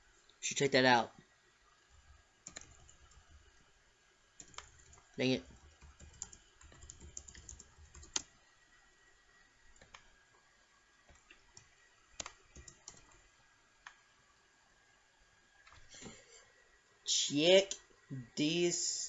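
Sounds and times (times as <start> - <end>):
keyboard keystrokes: 2.5 - 3.2, 4.4 - 8.3, 11.1 - 13.2.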